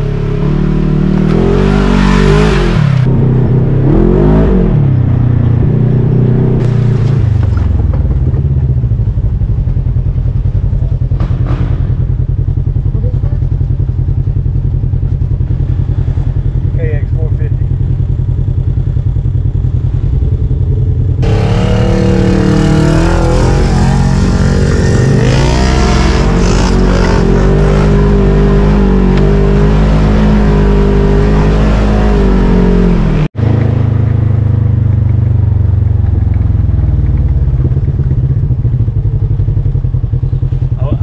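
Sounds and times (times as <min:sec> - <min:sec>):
vehicle engine revving: 0:00.0 - 0:09.4, 0:15.4 - 0:41.0.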